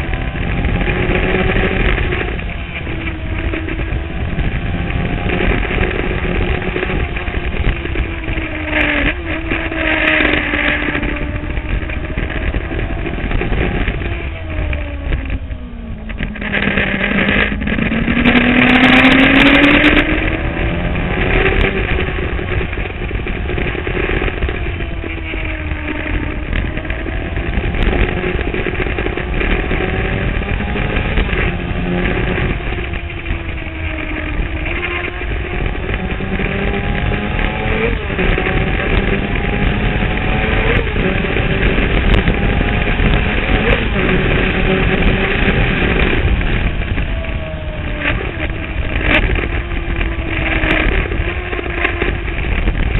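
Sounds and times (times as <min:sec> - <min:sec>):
motorcycle engine revving through gears: 0:00.0 - 0:52.9
wind rushing over microphone: 0:00.0 - 0:52.9.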